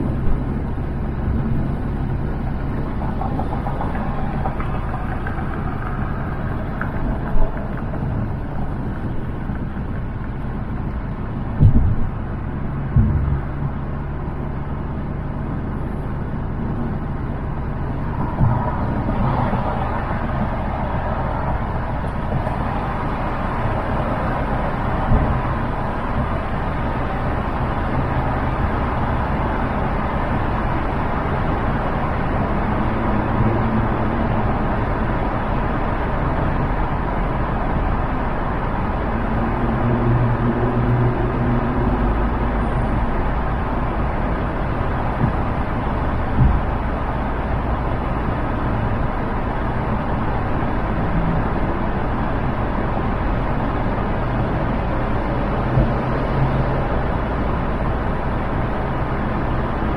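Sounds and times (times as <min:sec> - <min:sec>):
road and tyre noise: 0:00.0 - 0:59.9
short thumps: 0:11.5 - 0:12.2, 0:12.9 - 0:13.5.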